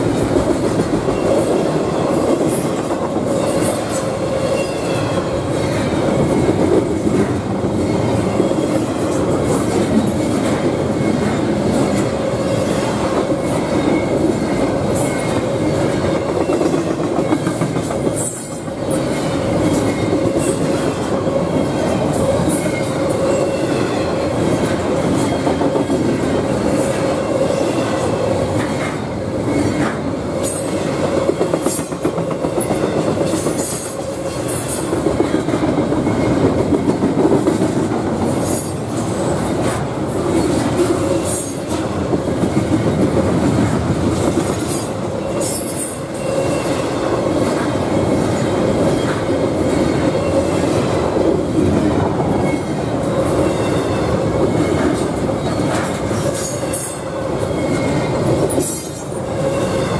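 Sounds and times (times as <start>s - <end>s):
train wheels rumbling over rails: 0.0s - 59.9s
high-pitched wheel squeals: 45.2s - 47.0s.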